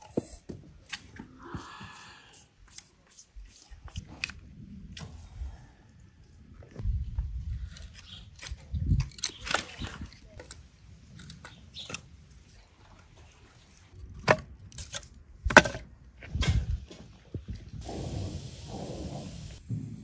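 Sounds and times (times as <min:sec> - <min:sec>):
firewood pieces knocking together: 0:14.2 - 0:15.9.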